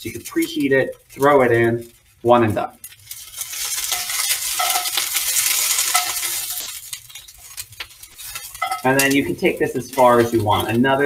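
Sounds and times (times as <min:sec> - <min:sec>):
scallions sizzling in a skillet: 0:00.0 - 0:11.0
metal tongs clicking on a pan: 0:02.9 - 0:09.3.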